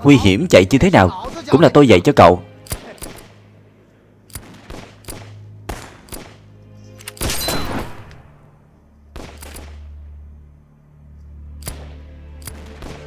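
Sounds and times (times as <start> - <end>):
low music drone: 1.6 - 13.0
gunshots: 4.3 - 6.4, 9.1 - 10.0, 11.6 - 13.0.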